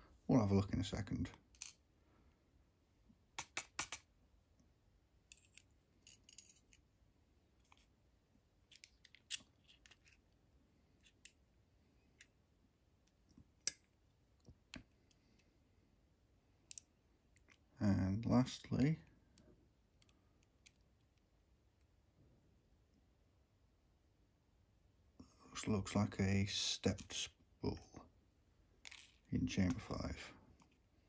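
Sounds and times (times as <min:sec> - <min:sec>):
small metal clicks and taps: 0:03.4 - 0:04.0.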